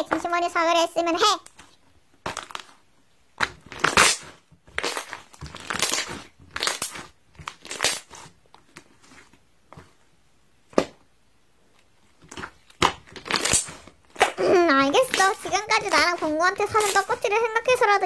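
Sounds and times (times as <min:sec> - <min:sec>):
slime squelching: 0:00.0 - 0:11.0, 0:11.8 - 0:18.0
sharp slime pop: 0:03.4 - 0:08.2, 0:10.7 - 0:11.1, 0:12.3 - 0:16.0.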